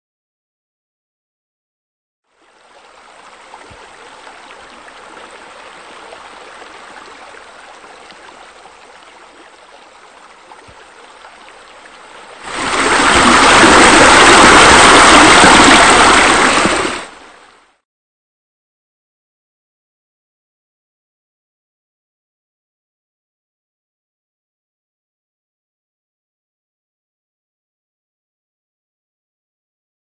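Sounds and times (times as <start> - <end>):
water trickling: 2.3 - 17.5
water rushing loudly: 11.9 - 17.6.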